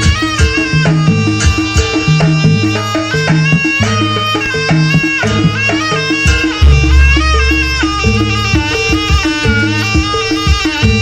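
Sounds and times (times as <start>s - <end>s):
drum strokes: 0.0s - 11.0s
reedy wind instrument melody: 0.0s - 11.0s
deep booming drum stroke: 6.6s - 9.6s.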